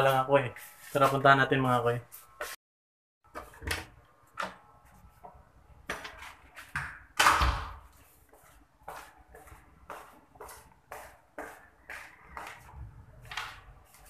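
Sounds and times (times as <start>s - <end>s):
footsteps on tiled floor: 7.8s - 14.0s.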